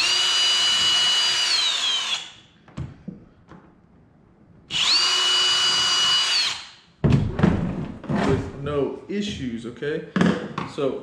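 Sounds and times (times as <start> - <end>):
cordless drill driving screws: 0.0 - 2.4, 4.7 - 6.8.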